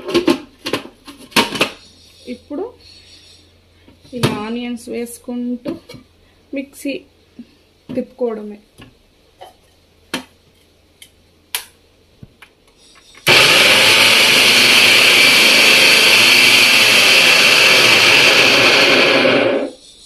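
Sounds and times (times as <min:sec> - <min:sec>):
food processor motor running: 0:13.2 - 0:19.7.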